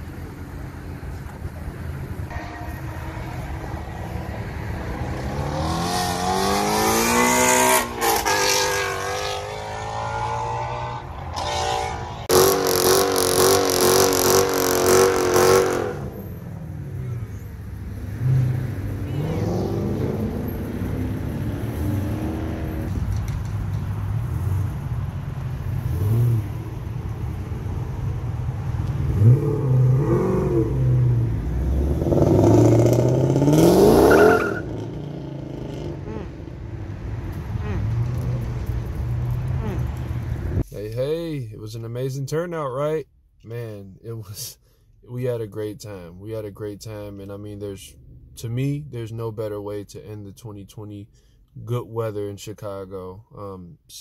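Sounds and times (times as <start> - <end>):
sports car engines revving: 3.0 - 23.2, 24.2 - 40.6.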